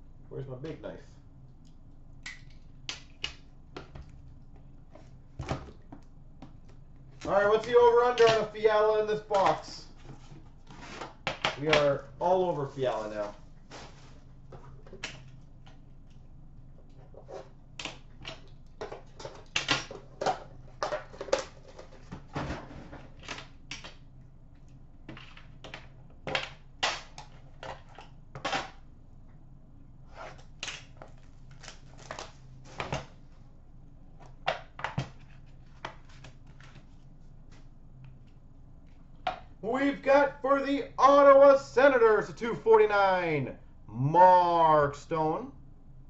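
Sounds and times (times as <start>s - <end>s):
low steady hum: 0.0s - 46.0s.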